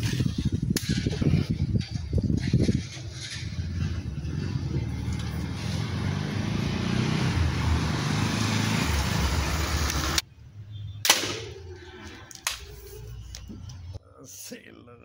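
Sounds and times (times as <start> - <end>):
speargun firing crack: 11.0 - 11.6.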